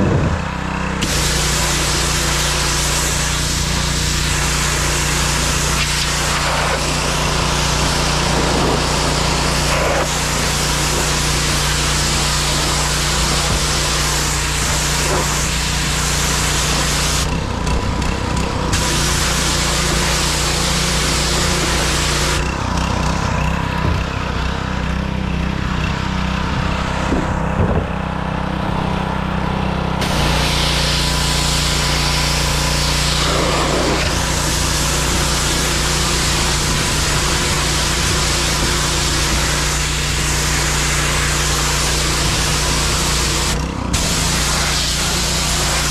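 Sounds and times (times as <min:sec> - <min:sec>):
pressure washer engine running: 0:00.0 - 0:45.9
high-pressure water jet hissing: 0:01.0 - 0:17.3, 0:18.7 - 0:22.4, 0:30.0 - 0:45.9.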